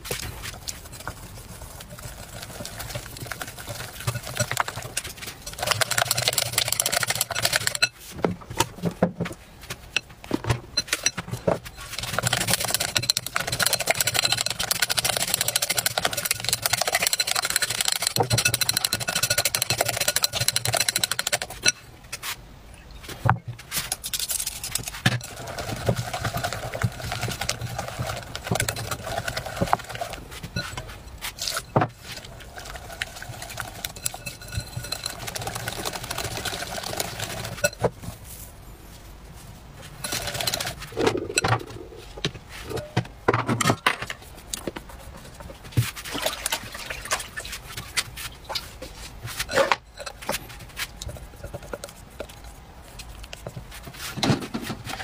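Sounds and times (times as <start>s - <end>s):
whisk beating batter in glass bowl: 0.1s - 8.0s, 11.7s - 21.8s, 23.9s - 38.2s, 40.0s - 41.4s, 49.3s - 54.1s.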